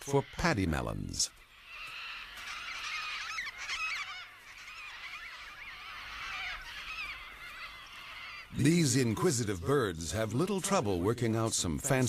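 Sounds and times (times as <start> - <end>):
flock of cockatoos calling: 0.0 - 9.4.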